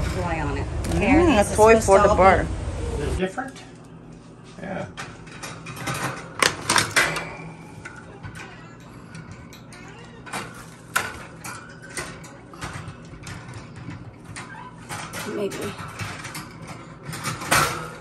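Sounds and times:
wire cage rattling and clinking: 5.0s - 18.0s.

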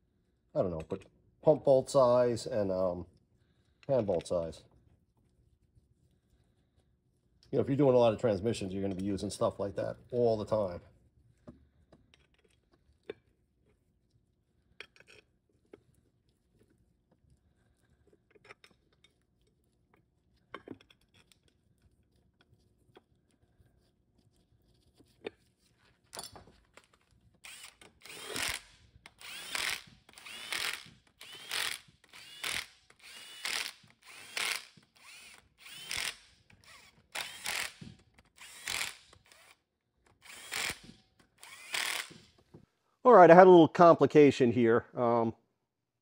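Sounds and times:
electric ratchet whining bursts: 27.4s - 39.6s, 40.2s - 42.2s.

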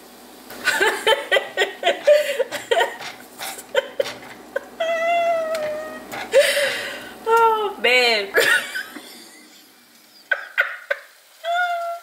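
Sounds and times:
woman giggling: 0.6s - 7.0s, 8.4s - 11.8s.

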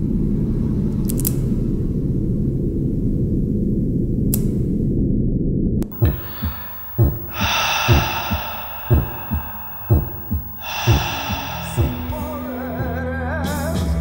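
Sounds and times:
heartbeat thumps: 5.8s - 13.0s
heavy gasping breaths: 5.8s - 13.0s.

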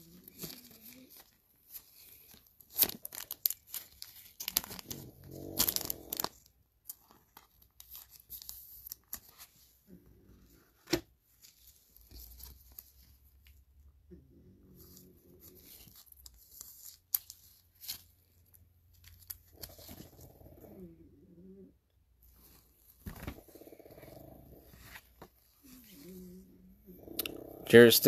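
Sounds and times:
paper and plastic rustling: 0.0s - 9.8s.

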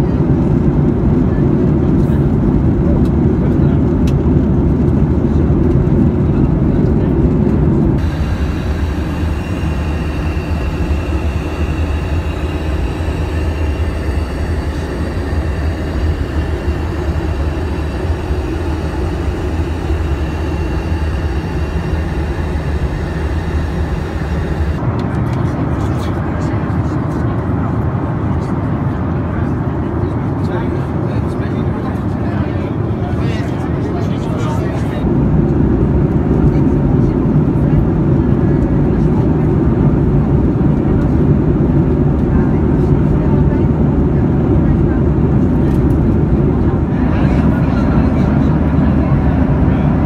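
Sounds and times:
airplane cabin rumble and air rush: 0.0s - 50.0s.

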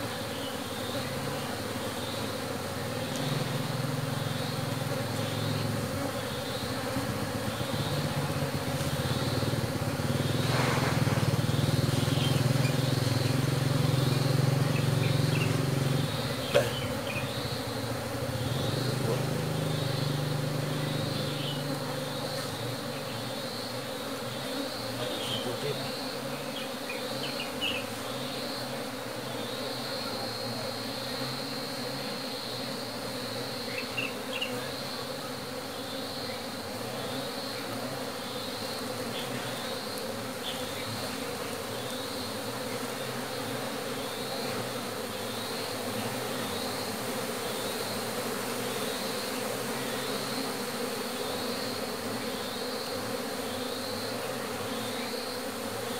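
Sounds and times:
honeybees buzzing: 0.0s - 55.9s.

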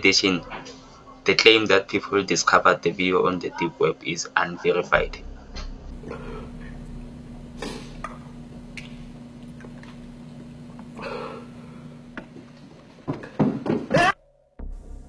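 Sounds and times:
tape recording hum: 0.0s - 15.0s
man crying out: 13.9s - 14.2s.

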